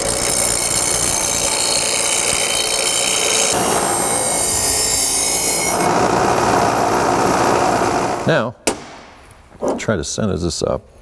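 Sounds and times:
bench grinder grinding metal: 0.0s - 8.3s.

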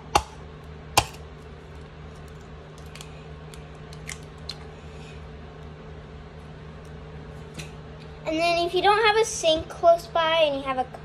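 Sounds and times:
egg cracking on plastic cup: 2.2s - 4.6s.

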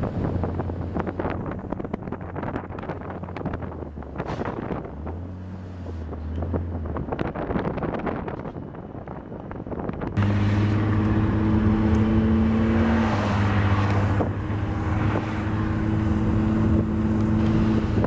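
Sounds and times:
wind-like rushing noise: 0.0s - 18.0s
low engine drone: 10.2s - 18.0s.

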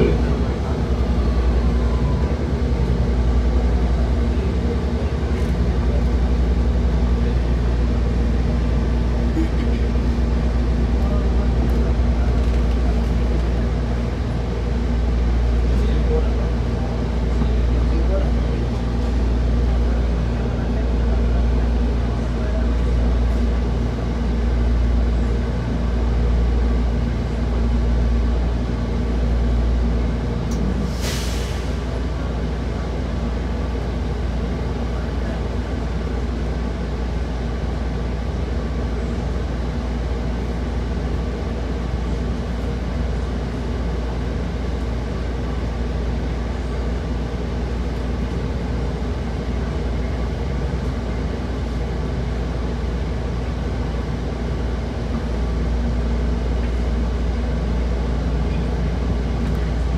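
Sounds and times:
bus interior drone: 0.0s - 59.9s
air release hiss: 30.9s - 31.7s.

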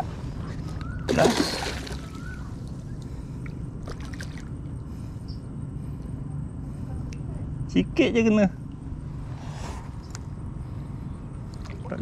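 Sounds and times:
steady low rumble: 0.0s - 12.0s
fish splashing in water: 1.1s - 4.5s.

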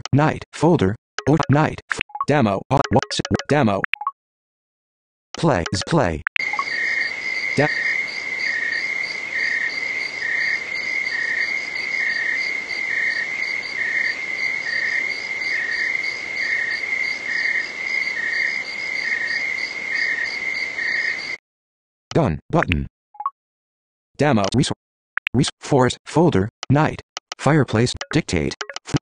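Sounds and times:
crickets and insects trilling: 6.4s - 21.4s.

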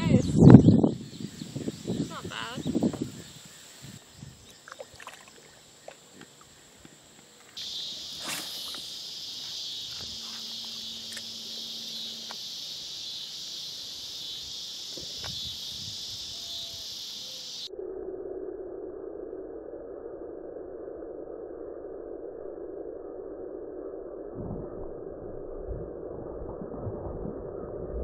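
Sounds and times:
insects chirring: 0.0s - 17.7s
water-side ambience: 1.8s - 17.7s.

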